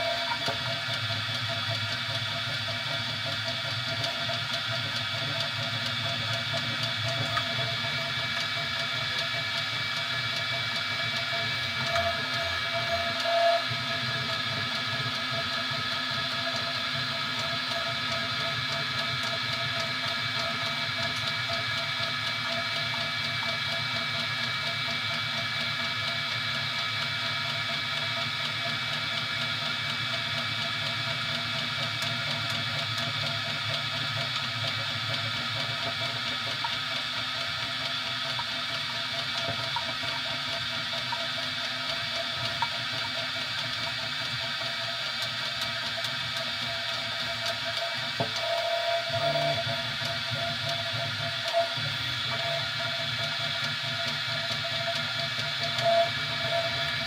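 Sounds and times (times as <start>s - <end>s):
printer fans and motors whirring: 0.0s - 57.0s.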